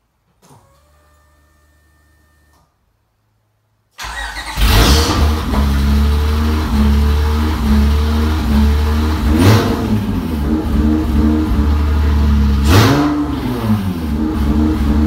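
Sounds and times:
car engine revving and idling: 4.4s - 15.0s.

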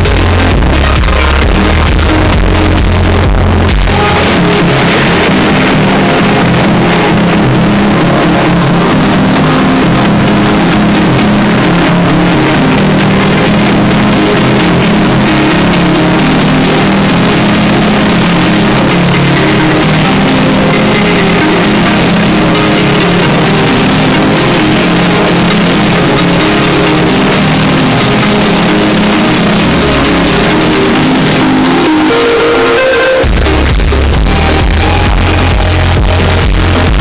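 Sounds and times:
loud distorted music: 0.0s - 37.0s.

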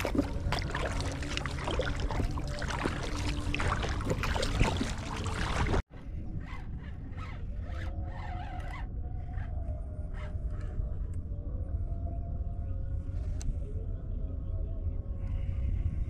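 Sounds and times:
paddle splashing in water: 0.0s - 5.9s
water slapping against hull: 0.0s - 5.9s.

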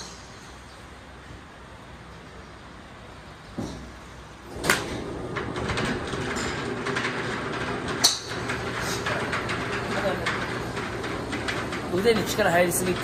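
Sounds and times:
steady background noise: 0.0s - 13.0s
golf club striking ball: 8.0s - 8.3s.

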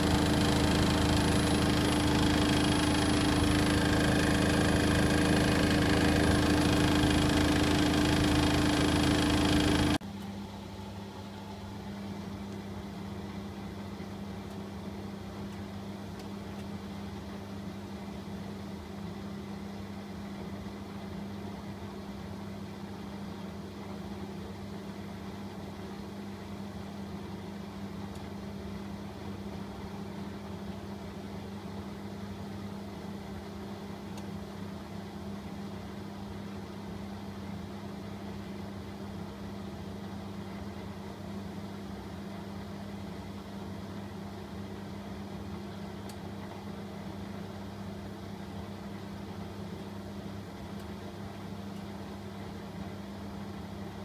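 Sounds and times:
washing machine tumbling laundry: 0.0s - 10.2s.

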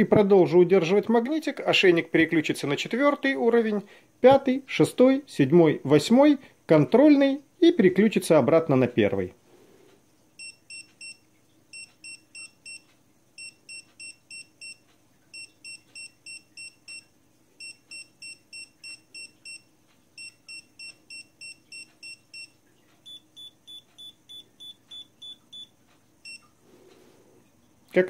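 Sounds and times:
collar beeping: 13.4s - 26.5s.

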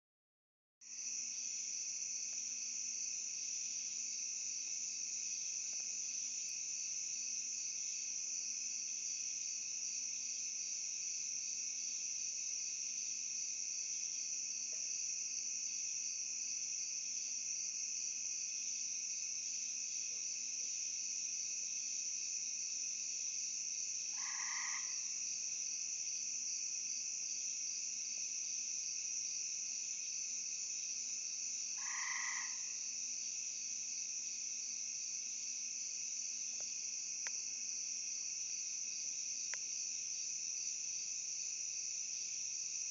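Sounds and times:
crickets trilling: 23.4s - 42.9s.

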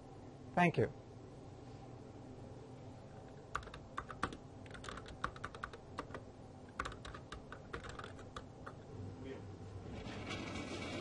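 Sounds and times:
steady low hum: 0.0s - 10.7s.

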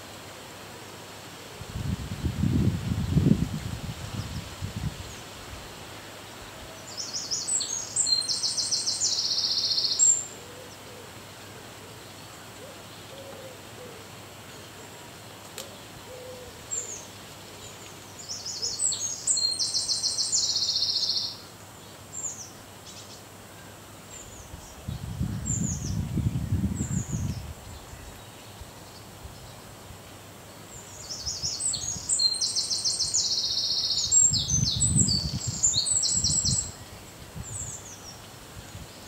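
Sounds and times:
songbird singing: 6.6s - 39.0s
low cooing: 16.0s - 16.9s.

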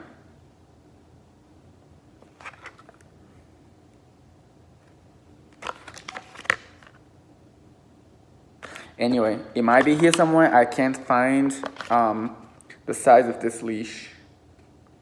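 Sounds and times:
paper tag rustling: 11.6s - 12.1s.

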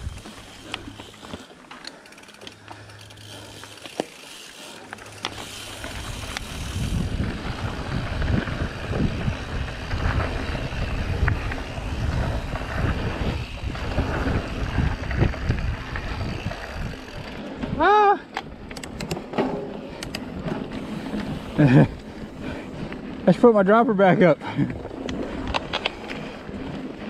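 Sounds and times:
bicycle clicks and knocks: 0.0s - 22.2s, 24.9s - 27.0s
tyre noise on dirt: 0.0s - 23.3s
wind buffeting microphone: 5.7s - 17.9s.

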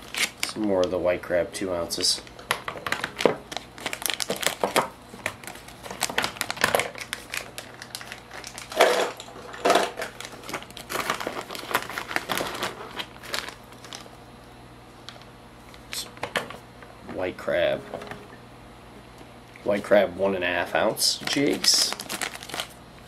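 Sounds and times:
plastic bag crinkling: 0.0s - 0.8s, 2.0s - 14.2s, 21.0s - 22.8s.

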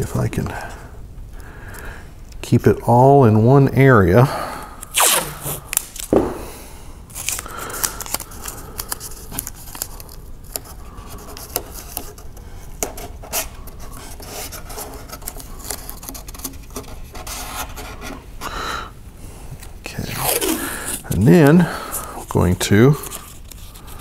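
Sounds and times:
tape being pulled and rubbed: 4.8s - 6.4s, 7.1s - 18.4s, 19.6s - 24.0s.

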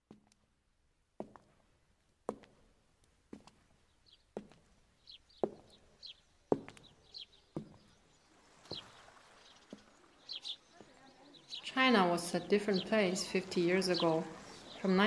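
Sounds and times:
small birds chirping: 3.3s - 15.0s.

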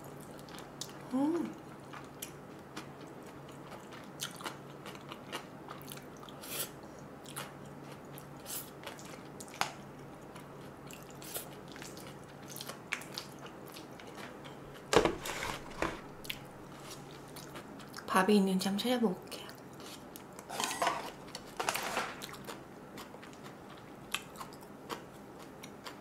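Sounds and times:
faint steady hum: 0.0s - 26.0s
wet chewing and smacking: 1.7s - 14.9s, 16.2s - 18.1s, 22.2s - 26.0s.

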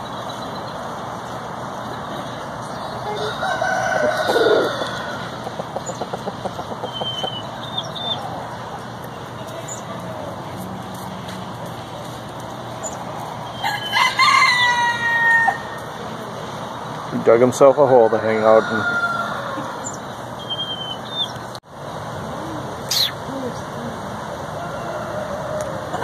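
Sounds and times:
rooster crowing: 3.1s - 5.6s, 13.5s - 15.8s, 17.7s - 19.8s, 24.6s - 26.0s.

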